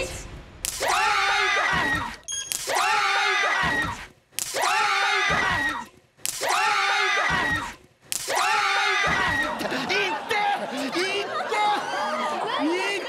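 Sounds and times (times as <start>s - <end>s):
group of people screaming: 0.8s - 4.0s, 4.6s - 9.7s.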